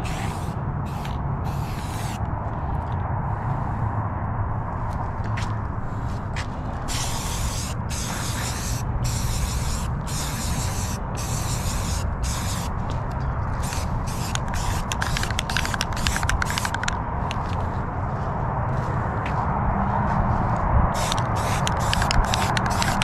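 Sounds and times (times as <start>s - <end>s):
spray paint can hissing: 0.0s - 2.2s, 6.9s - 12.8s, 13.6s - 17.0s, 21.0s - 23.0s
steady low rumble: 0.0s - 23.0s.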